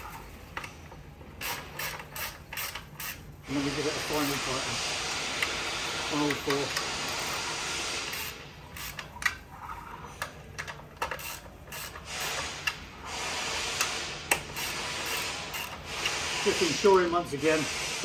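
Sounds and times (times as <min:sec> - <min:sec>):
ratchet wrench clicking: 0:01.4 - 0:03.2, 0:06.2 - 0:09.4, 0:10.2 - 0:12.8, 0:13.7 - 0:16.2.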